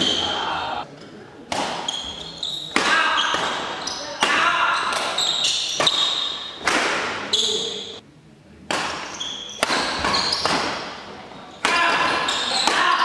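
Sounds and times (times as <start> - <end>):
shoes squeaking on court: 0.0 - 0.4, 1.8 - 8.0, 9.0 - 11.0, 12.1 - 12.8
rackets hitting shuttlecock: 1.5 - 8.0, 8.7 - 13.0.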